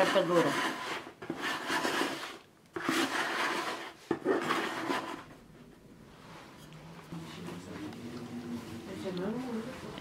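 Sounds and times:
metal scraper rasping against bowl: 0:00.0 - 0:05.3.

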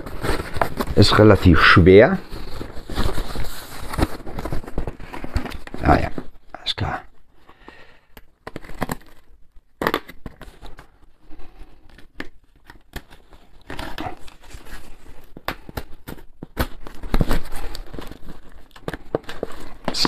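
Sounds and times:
cardboard flaps rustling: 0:00.0 - 0:06.4, 0:08.4 - 0:20.0
packing tape tearing: 0:08.4 - 0:10.9.

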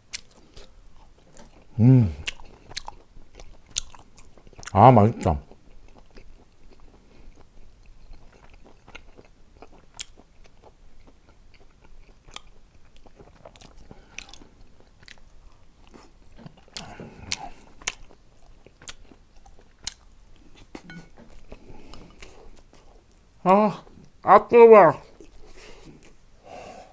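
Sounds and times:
person chewing: 0:00.1 - 0:24.2, 0:25.0 - 0:26.2.

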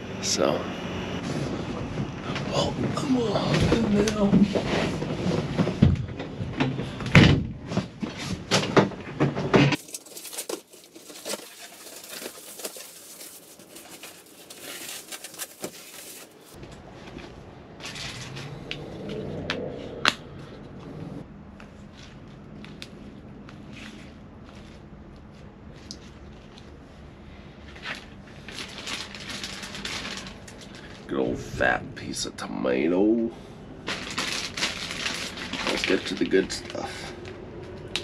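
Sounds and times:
knocks and thumps in truck bed: 0:05.4 - 0:09.8
gear being handled: 0:09.7 - 0:18.5.

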